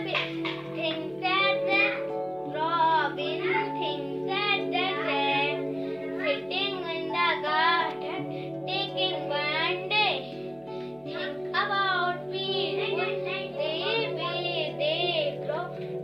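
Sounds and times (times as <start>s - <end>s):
girl singing in high voice: 0.0s - 10.3s
background music with held chords: 0.0s - 16.0s.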